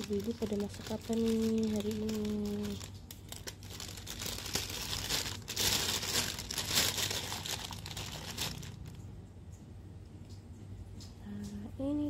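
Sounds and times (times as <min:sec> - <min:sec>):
plastic bag crinkling: 0:00.0 - 0:09.1.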